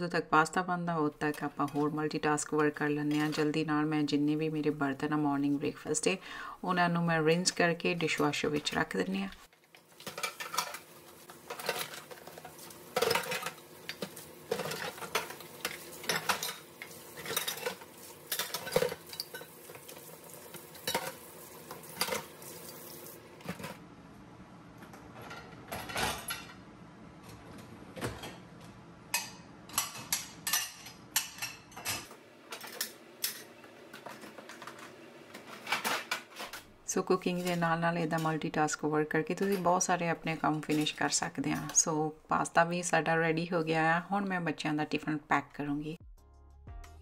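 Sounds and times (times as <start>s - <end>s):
kitchen tap running: 9.9s - 23.4s
dishes clinking into racks: 10.0s - 22.5s, 24.9s - 26.6s, 29.1s - 36.6s
dishes clattering in a steel sink: 10.0s - 22.6s, 25.2s - 26.6s, 29.1s - 36.6s.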